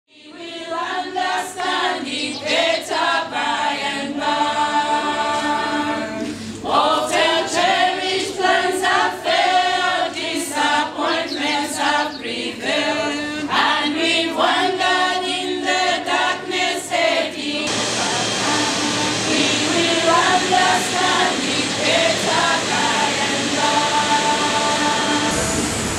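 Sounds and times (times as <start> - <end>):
choir singing unaccompanied: 0.1 - 25.9
steady hiss: 16.0 - 25.9.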